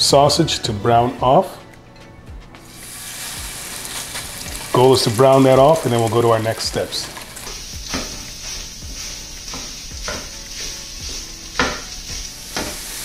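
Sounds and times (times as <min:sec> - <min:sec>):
sausage sizzling in oil: 0:02.6 - 0:13.0
spatula scraping a pan: 0:06.9 - 0:13.0.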